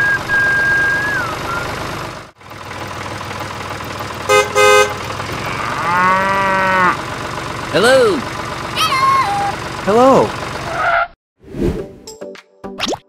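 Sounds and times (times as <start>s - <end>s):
high whistle-like tone: 0.0s - 1.7s
low engine hum: 0.0s - 10.8s
vehicle horn toots: 4.3s - 5.1s
cow mooing: 5.3s - 7.0s.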